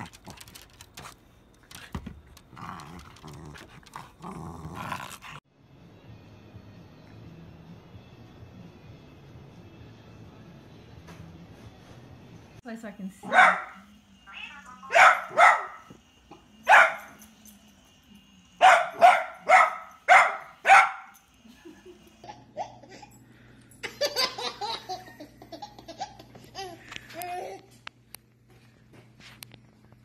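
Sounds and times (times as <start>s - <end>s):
dog barking: 13.2s - 13.8s, 14.8s - 15.9s, 16.6s - 17.2s, 18.6s - 21.2s
baby laughing and babbling: 25.9s - 27.7s.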